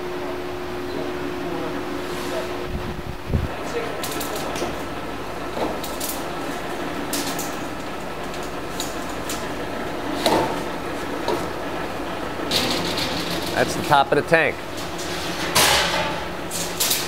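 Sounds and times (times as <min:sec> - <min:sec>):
steady shop hum: 0:00.0 - 0:17.0
metal sheet clatter: 0:12.5 - 0:14.0, 0:14.7 - 0:17.0.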